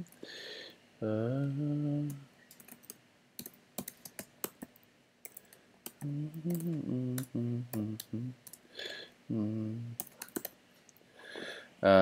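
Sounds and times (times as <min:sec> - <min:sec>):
man murmuring: 0:06.0 - 0:08.4, 0:09.3 - 0:10.0.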